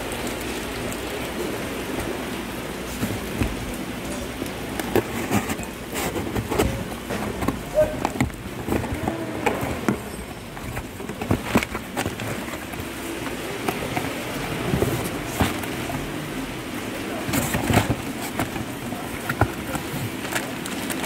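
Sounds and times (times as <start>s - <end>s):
steady background noise: 0.0s - 21.0s
plastic wrapping crinkling: 1.8s - 21.0s
cardboard box flaps handled: 17.2s - 20.4s.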